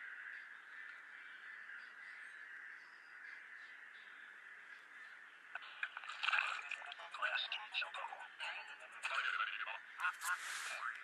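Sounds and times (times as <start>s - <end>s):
faint steady hiss: 8.2s - 11.0s.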